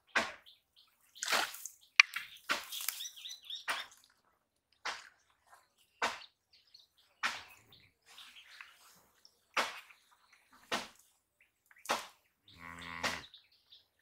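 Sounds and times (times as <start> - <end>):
pond water splashing: 1.0 - 6.5.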